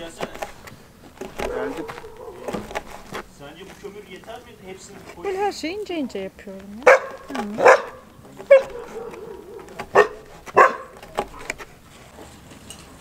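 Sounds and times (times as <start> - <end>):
dog barking: 1.4 - 2.7, 6.8 - 11.5.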